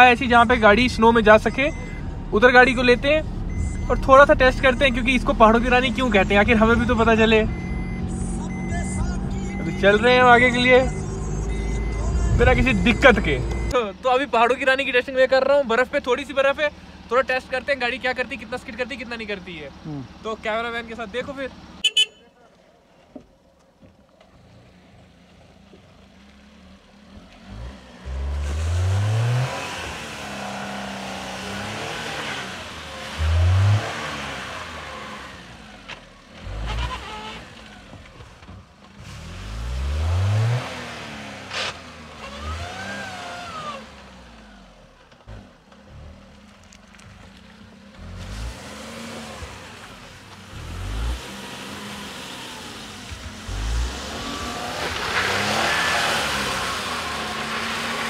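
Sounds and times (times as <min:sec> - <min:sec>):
car engine revving: 0:00.0 - 0:21.9, 0:24.2 - 0:58.0.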